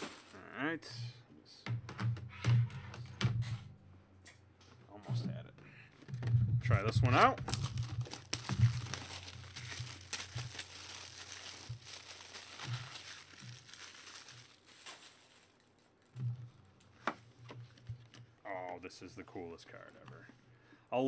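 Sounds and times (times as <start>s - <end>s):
plastic wrap crinkling: 6.8s - 17.0s.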